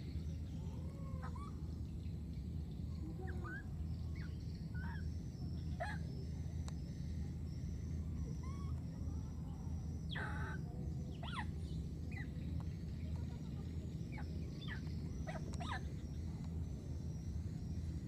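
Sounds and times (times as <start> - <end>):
steady low rumble: 0.0 - 18.0
high-pitched animal calls: 5.8 - 6.1, 10.0 - 12.4, 14.1 - 16.2.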